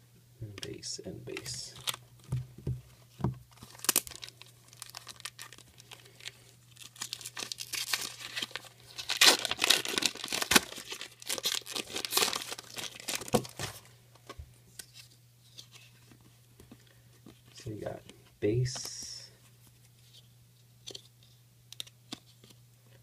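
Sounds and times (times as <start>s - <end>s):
foil wrappers tearing and crinkling: 1.4s - 2.0s, 3.5s - 13.9s.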